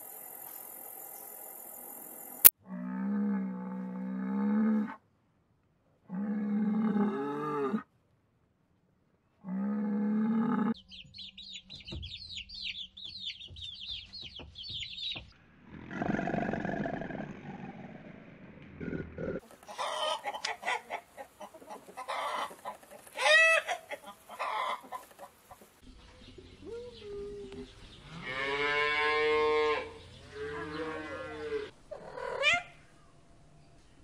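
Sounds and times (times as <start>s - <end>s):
rapid high-pitched chirping: 10.8s - 15.3s
coarse animal call: 26.7s - 33.2s.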